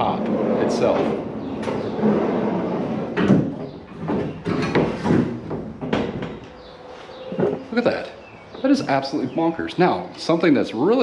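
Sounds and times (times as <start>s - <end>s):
sliding rack scraping and rattling: 0.0s - 6.4s.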